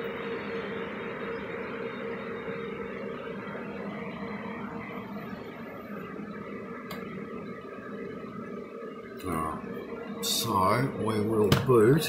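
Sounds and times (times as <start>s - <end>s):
cooling fans whirring: 0.0s - 12.0s.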